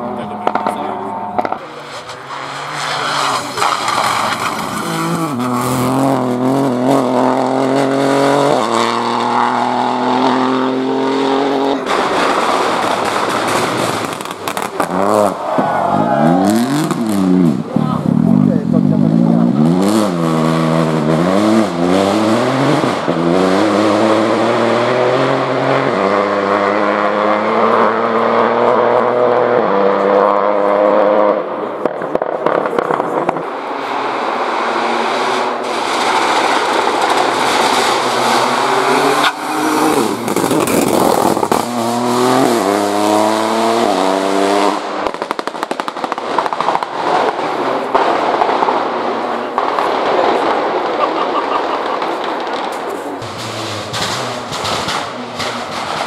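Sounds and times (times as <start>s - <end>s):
rally car engines accelerating: 0.0s - 56.0s
exhaust pops and bangs: 0.4s - 0.8s, 1.4s - 2.3s, 11.8s - 15.7s, 31.8s - 33.5s, 44.7s - 51.1s, 51.8s - 56.0s.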